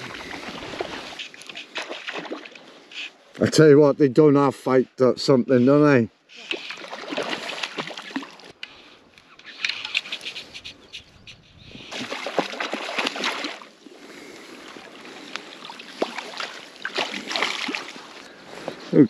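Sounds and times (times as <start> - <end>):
fish splashing in water: 0.0 - 2.6, 6.4 - 8.6, 11.9 - 13.7, 15.6 - 18.2.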